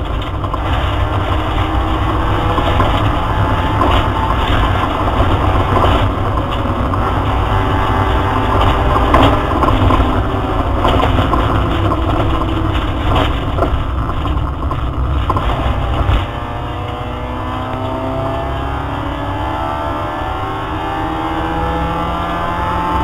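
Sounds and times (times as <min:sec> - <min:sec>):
sharp knocks: 0:00.0 - 0:16.4
rally car engine revving: 0:00.0 - 0:23.0.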